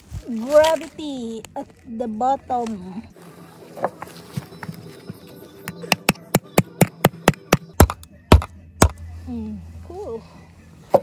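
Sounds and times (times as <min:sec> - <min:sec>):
hammer striking nails: 0:05.9 - 0:09.0.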